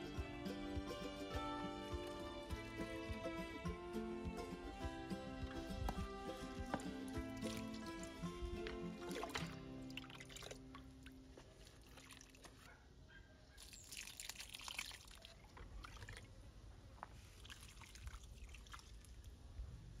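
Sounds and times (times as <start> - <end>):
background music: 0.0 - 10.4
water dripping and trickling: 6.7 - 12.7, 13.6 - 16.4, 17.2 - 19.4
water splash: 7.4 - 12.6.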